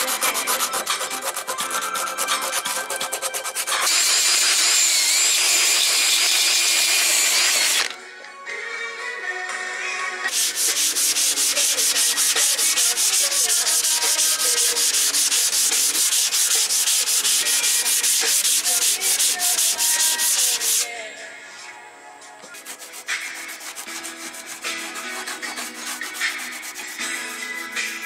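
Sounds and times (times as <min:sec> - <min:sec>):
sanding block rubbing car panels: 0:00.0 - 0:03.9, 0:10.3 - 0:20.8, 0:22.6 - 0:28.0.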